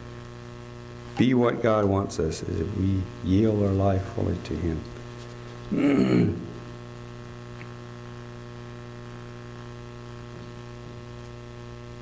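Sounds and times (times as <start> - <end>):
electrical mains hum: 0.0 - 12.0
man speaking: 1.2 - 4.9.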